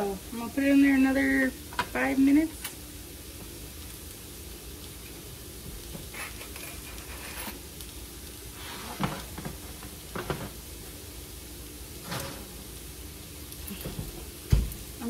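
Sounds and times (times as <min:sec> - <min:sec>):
potatoes sizzling in a pan: 0:00.0 - 0:15.0
kitchen utensils clattering: 0:08.9 - 0:10.6, 0:12.0 - 0:12.6.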